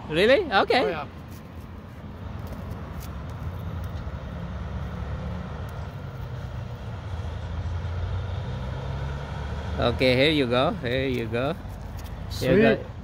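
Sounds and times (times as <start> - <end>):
road traffic rumble: 0.0 - 13.0
heavy truck: 3.9 - 10.8.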